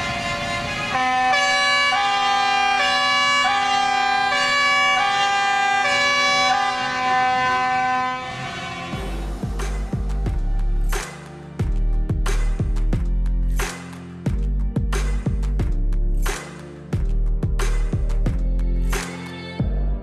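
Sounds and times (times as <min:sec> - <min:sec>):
horn-like held chords: 0:00.0 - 0:10.8
drumbeat: 0:09.0 - 0:18.5.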